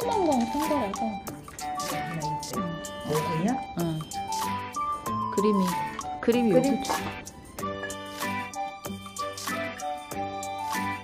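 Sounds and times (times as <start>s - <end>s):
light background music: 0.0s - 11.0s.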